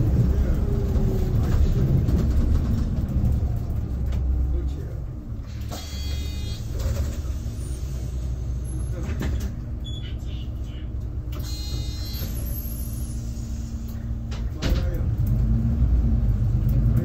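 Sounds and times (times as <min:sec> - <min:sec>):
bus engine and road rumble: 0:00.0 - 0:17.0.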